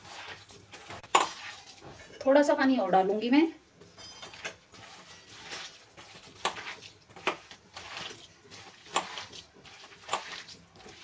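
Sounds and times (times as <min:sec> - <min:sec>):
hand squelching through batter: 0:00.0 - 0:01.9, 0:04.3 - 0:11.0.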